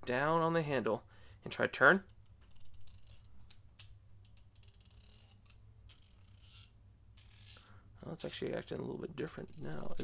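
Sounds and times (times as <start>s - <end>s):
ratchet clicking: 2.1s - 7.7s.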